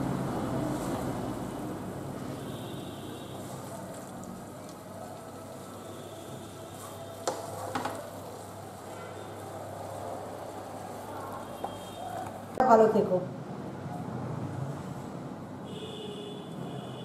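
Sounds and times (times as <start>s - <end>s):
faint sizzle: 0.5s - 12.6s.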